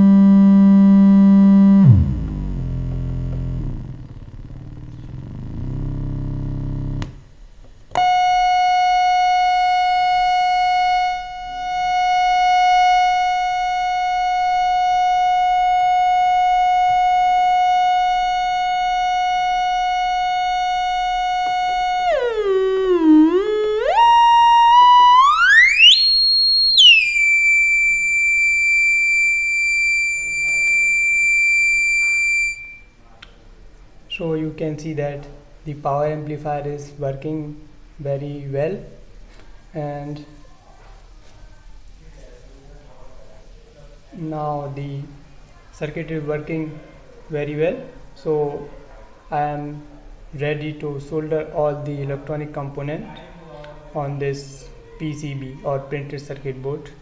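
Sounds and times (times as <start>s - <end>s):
buzzy sawtooth test tone: 0.0s - 7.2s, 7.9s - 32.9s
low buzzy sound: 0.0s - 32.9s.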